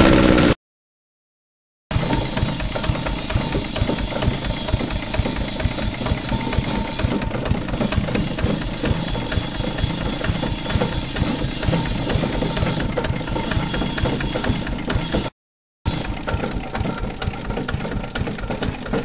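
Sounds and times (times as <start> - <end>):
straw chopper running: 0.0 - 0.6, 1.9 - 15.3, 15.9 - 19.0.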